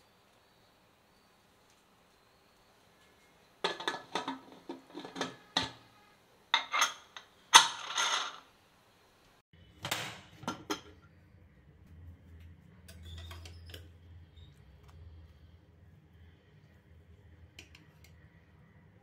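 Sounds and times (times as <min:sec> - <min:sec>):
pot lid clattering and scraping: 0:03.6 - 0:05.9, 0:06.6 - 0:08.4, 0:10.4 - 0:11.0.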